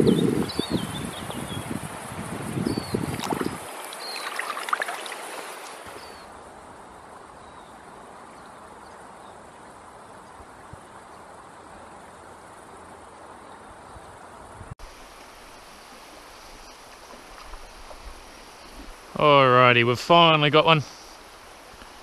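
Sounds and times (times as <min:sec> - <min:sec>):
shallow stream rushing: 0:01.0 - 0:13.4, 0:14.8 - 0:22.0
water splashing around hands: 0:03.0 - 0:06.0.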